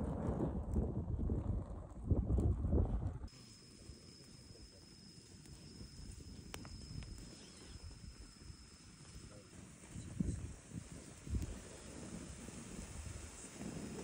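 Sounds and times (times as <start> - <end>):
outdoor background noise: 0.0 - 14.0
high-pitched insect trill: 3.3 - 14.0.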